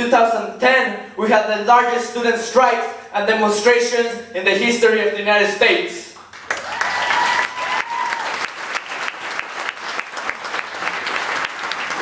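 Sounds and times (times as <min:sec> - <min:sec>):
audience applauding: 0:06.2 - 0:12.0
crowd whoop or whistle: 0:06.6 - 0:08.4.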